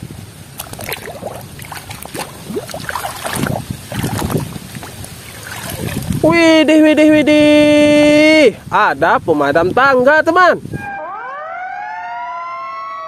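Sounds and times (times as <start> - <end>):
muddy water sloshing in a basin: 0.5 - 6.3.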